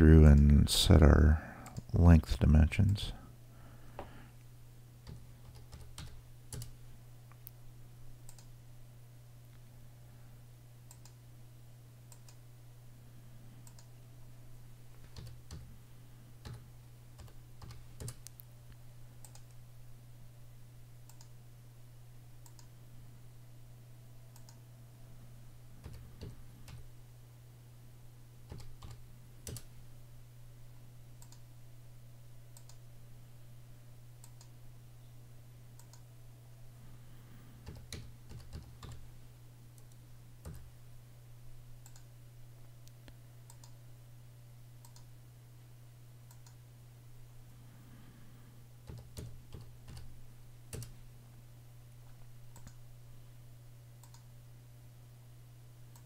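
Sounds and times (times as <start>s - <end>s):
steady low hum: 0.0s - 56.0s
computer mouse clicks: 5.0s - 6.8s, 8.3s - 8.5s, 10.9s - 11.2s, 12.1s - 12.4s, 13.6s - 13.9s, 17.2s - 18.5s, 19.2s - 19.6s, 21.1s - 21.3s, 22.4s - 22.7s, 24.3s - 24.6s, 28.5s - 29.7s, 31.2s - 31.4s, 32.6s - 32.8s, 34.2s - 34.5s, 35.8s - 36.0s, 37.6s - 39.0s, 41.8s - 42.1s, 42.8s - 43.8s, 44.8s - 45.1s, 46.3s - 46.6s, 48.8s - 50.1s, 50.7s - 51.0s, 52.5s - 52.8s, 54.0s - 54.3s
keyboard typing: 5.0s - 6.8s, 15.0s - 15.7s, 16.4s - 16.6s, 17.2s - 18.4s, 25.8s - 26.8s, 28.5s - 29.7s, 37.6s - 39.0s, 39.8s - 40.7s, 48.8s - 50.1s, 50.7s - 51.0s.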